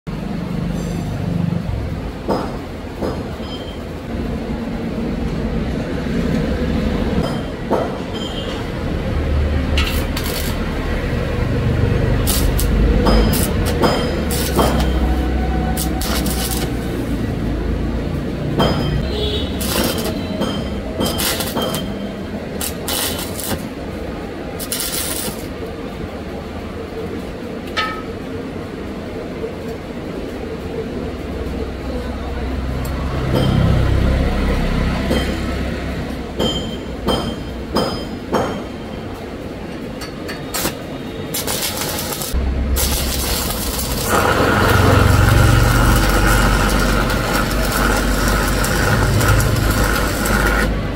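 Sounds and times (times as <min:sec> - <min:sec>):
welding arc crackling: 0:08.7 - 0:25.8, 0:40.5 - 0:50.9.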